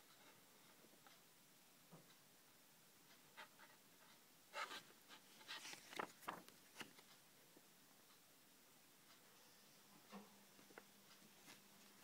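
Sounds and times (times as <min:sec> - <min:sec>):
paper pages turning: 0:04.6 - 0:07.1.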